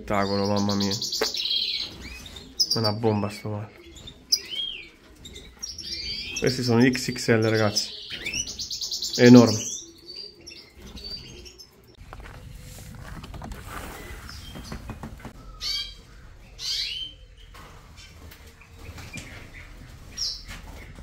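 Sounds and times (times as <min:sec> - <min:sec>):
cage birds chirping: 0:00.0 - 0:21.0
wings fluttering: 0:10.8 - 0:16.8, 0:17.4 - 0:21.0.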